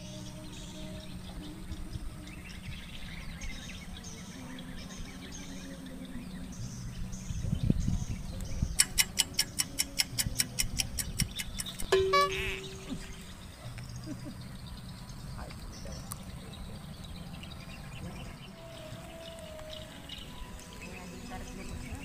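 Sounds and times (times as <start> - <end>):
birds calling faintly: 0.0 - 22.0
short hum: 11.9 - 13.2.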